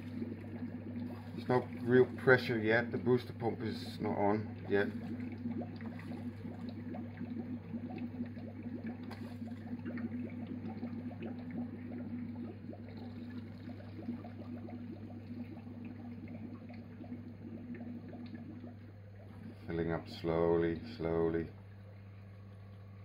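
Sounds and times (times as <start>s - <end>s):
steady low hum: 0.0s - 23.0s
water gurgling and crackling: 0.0s - 23.0s.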